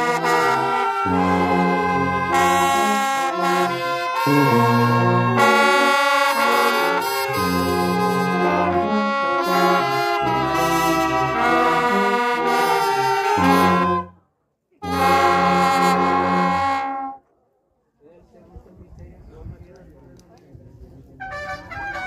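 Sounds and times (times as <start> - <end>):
brass band playing: 0.0 - 14.2, 14.8 - 17.2, 21.2 - 22.0.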